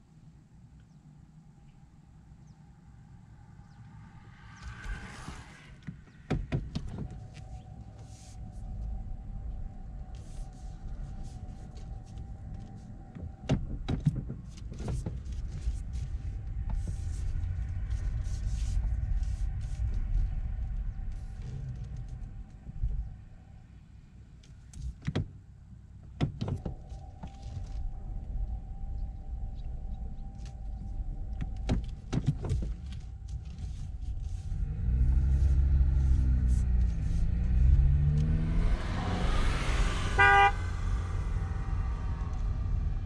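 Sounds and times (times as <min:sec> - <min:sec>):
car road noise: 0:02.1 - 0:43.0
low engine sound: 0:25.7 - 0:43.0
car horn toot: 0:39.6 - 0:41.3.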